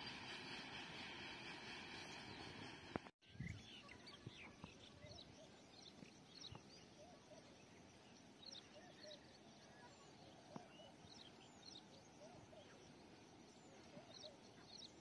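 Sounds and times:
steady hiss: 0.0s - 3.1s.

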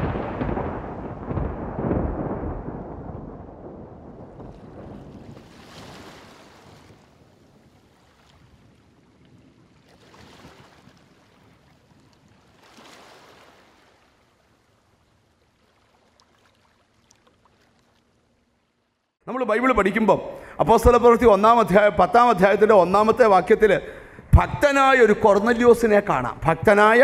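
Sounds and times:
waves breaking on rocky shore: 4.4s - 17.0s.

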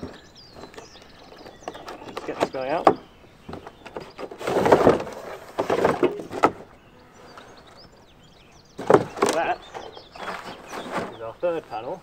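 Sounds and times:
cardboard scraping and rustling: 3.5s - 6.8s, 8.8s - 11.4s.

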